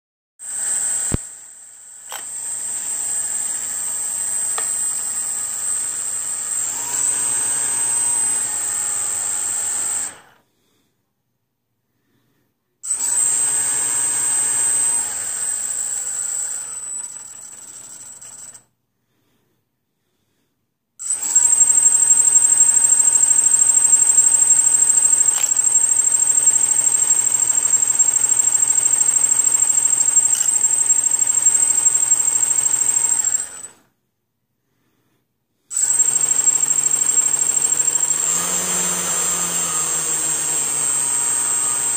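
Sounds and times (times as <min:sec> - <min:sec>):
brushless motor whining: 0:21.1 - 0:33.8, 0:35.7 - 0:41.9.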